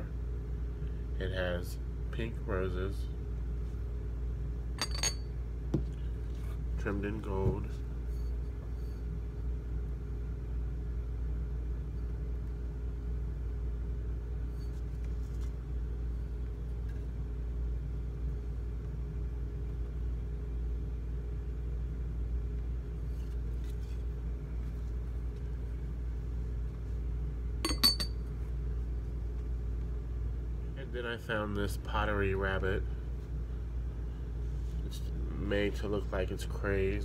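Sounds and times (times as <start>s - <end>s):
low background hum: 0.0s - 37.0s
ceramic lid clinking on jar: 27.7s - 28.2s.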